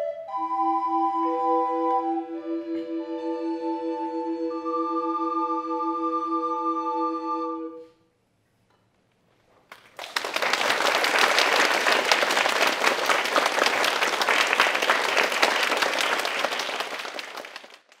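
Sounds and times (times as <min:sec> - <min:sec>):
audience applauding: 0:09.6 - 0:18.0.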